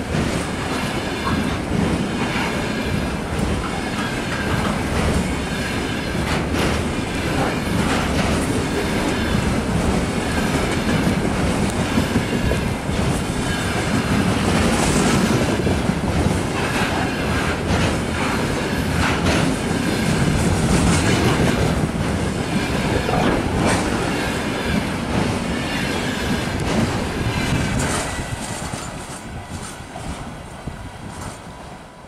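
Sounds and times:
train wheels clattering over rail joints: 0:00.0 - 0:30.3.

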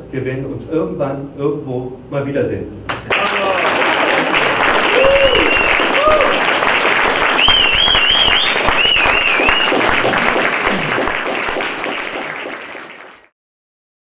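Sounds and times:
audience applauding: 0:02.9 - 0:13.3
high warbling whistle: 0:05.0 - 0:06.0, 0:07.3 - 0:09.9.

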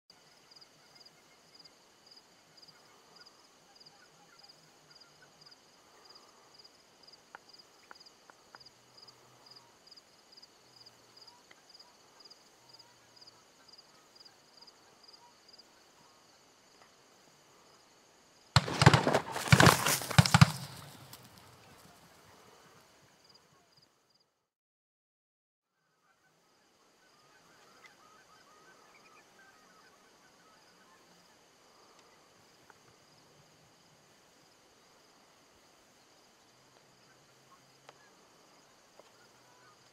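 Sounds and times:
shotgun blasts: 0:18.6 - 0:21.4.

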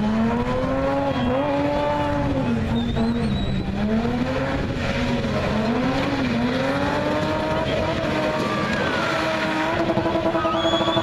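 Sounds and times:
car engine revving high: 0:00.0 - 0:11.0
tyres squealing while spinning: 0:07.5 - 0:11.0.

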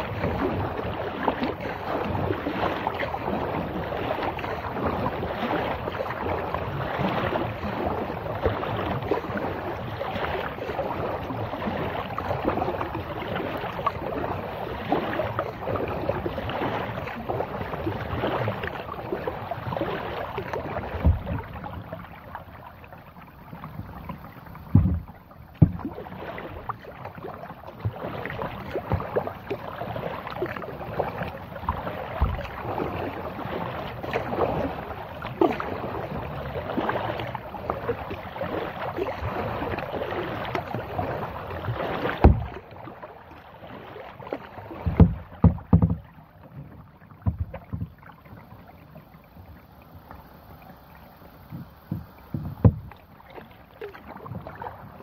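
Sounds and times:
water splashing against kayak hull: 0:00.0 - 0:55.0
dull knocks: 0:21.0 - 0:21.4, 0:24.6 - 0:26.0, 0:42.2 - 0:42.5, 0:44.8 - 0:46.0, 0:47.2 - 0:48.0, 0:51.5 - 0:53.0.

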